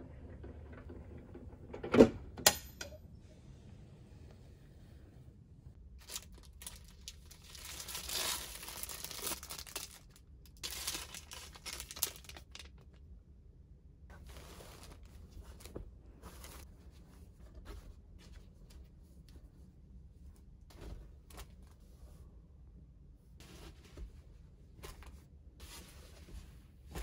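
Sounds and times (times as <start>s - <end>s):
plastic wrapping crinkling: 6.0s - 12.9s.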